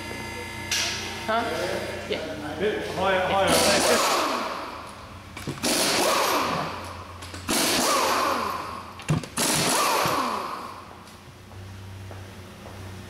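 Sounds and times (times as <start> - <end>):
air motor whining down: 3.0 - 12.8
pneumatic impact wrench bursts: 3.5 - 10.9.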